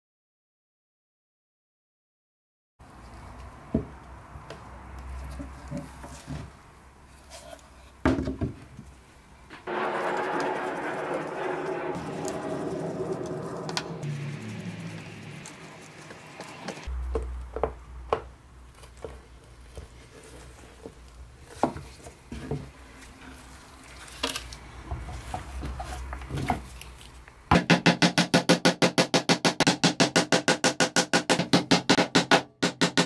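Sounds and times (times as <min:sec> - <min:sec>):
hammer striking nails: 0:27.5 - 0:33.0.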